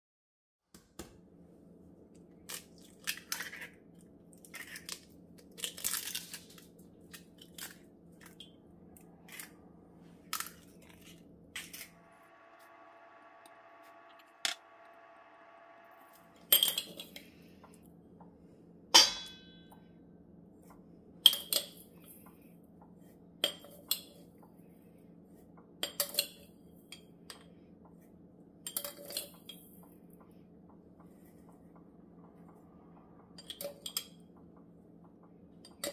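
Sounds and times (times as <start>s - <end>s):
faint steady hum: 1.1s - 35.9s
kitchen utensils clinking: 16.4s - 17.2s, 19.0s - 19.6s
sharp ringing metallic clink: 19.0s - 19.8s.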